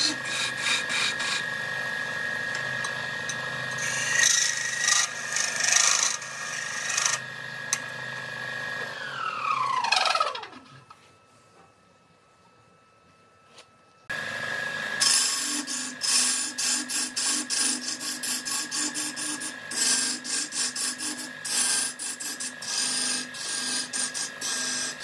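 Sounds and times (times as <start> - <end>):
lathe spinning down: 0.0 - 10.8
wood lathe whining: 0.0 - 10.9, 14.1 - 25.0
tool scraping spinning wood: 0.0 - 11.1, 14.2 - 25.0.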